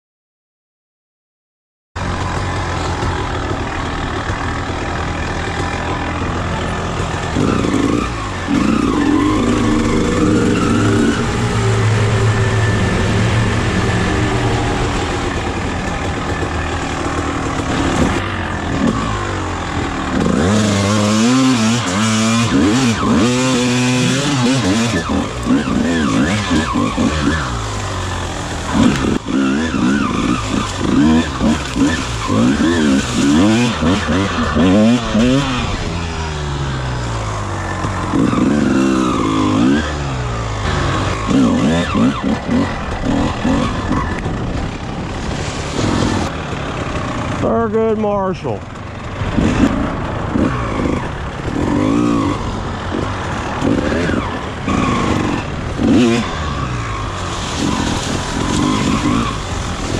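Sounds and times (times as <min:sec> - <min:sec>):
dirt bike engine revving: 0:02.0 - 0:59.9.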